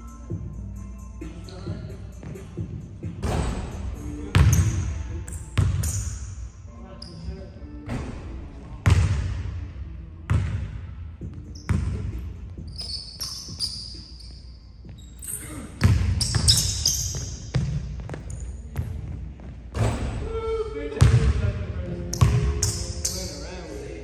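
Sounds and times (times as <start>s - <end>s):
sneakers squeaking: 1.2s - 9.2s, 10.3s - 21.4s, 22.0s - 23.6s
basketball bouncing on wood floor: 15.8s - 20.0s.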